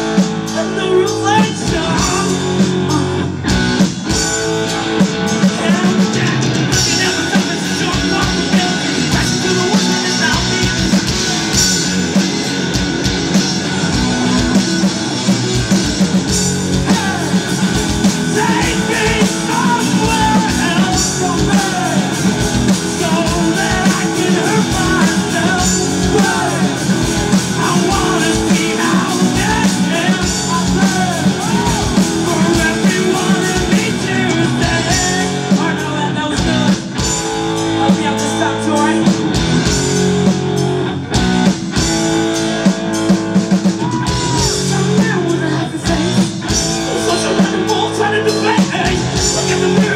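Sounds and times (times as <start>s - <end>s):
man singing lead vocal: 0.0s - 3.6s, 5.2s - 11.8s, 16.6s - 39.4s, 43.7s - 49.9s
bass guitar: 0.0s - 49.9s
distorted electric guitars: 0.0s - 49.9s
drum kit: 0.0s - 49.9s.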